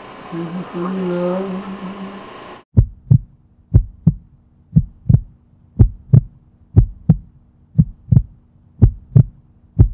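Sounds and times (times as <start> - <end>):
faint steady hum: 0.0 - 9.9
heartbeat double thumps: 2.7 - 9.9.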